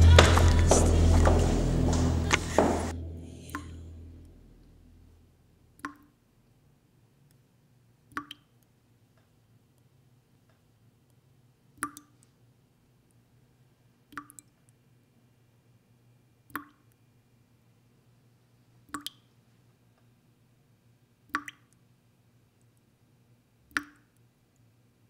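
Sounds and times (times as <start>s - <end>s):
faint steady hum: 0.0s - 25.0s
water drops plopping: 5.8s - 6.1s, 8.1s - 8.5s, 11.8s - 12.2s, 14.1s - 14.5s, 16.5s - 16.8s, 18.9s - 19.2s, 21.4s - 21.7s, 23.7s - 24.1s.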